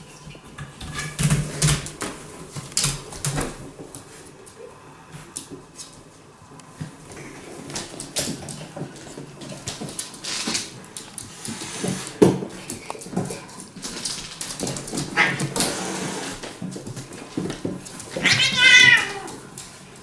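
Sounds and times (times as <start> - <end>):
animals whimpering and growling: 15.1 - 15.7.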